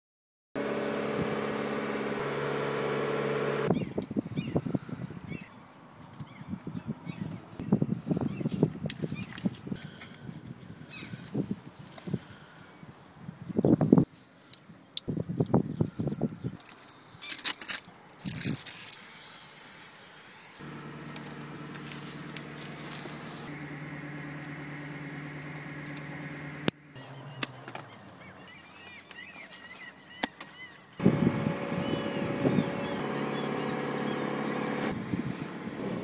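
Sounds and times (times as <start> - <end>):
motor humming: 0.6 - 3.9, 20.6 - 28.1, 31.0 - 36.0.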